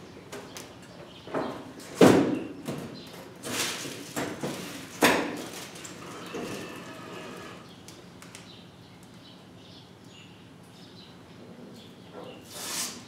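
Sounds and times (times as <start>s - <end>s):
dispenser motor whir: 6.0s - 7.7s.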